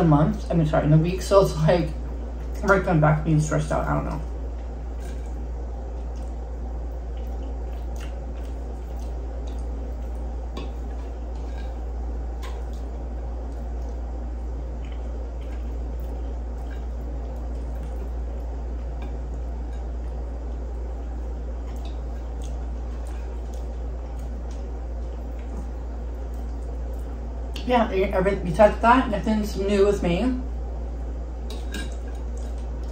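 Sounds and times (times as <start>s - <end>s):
steady low hum: 0.0s - 32.9s
chewing: 4.2s - 27.2s.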